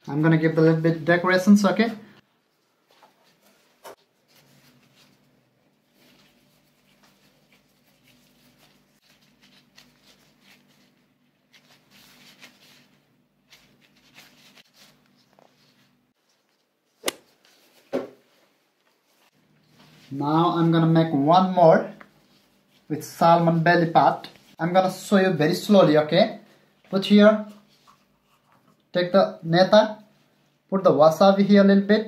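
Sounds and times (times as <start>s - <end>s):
gloved hands rustling: 2.5s - 24.6s.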